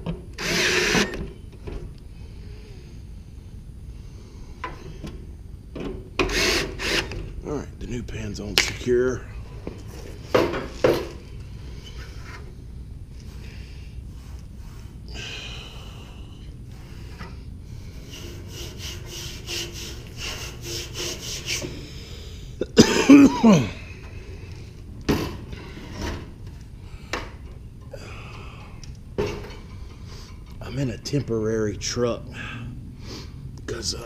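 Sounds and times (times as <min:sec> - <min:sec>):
scraping and rubbing on metal coil: 0:13.1 - 0:15.1, 0:17.9 - 0:21.8.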